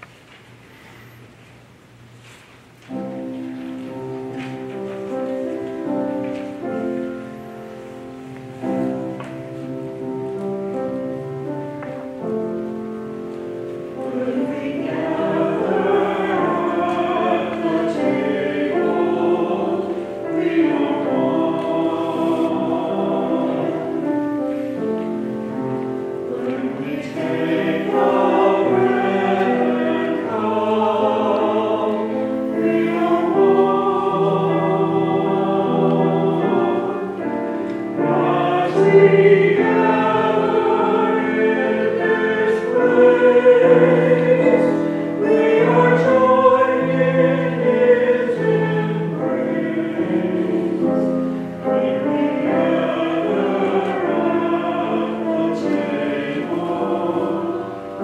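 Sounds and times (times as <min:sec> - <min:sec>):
choir singing: 0:02.9 - 0:58.0.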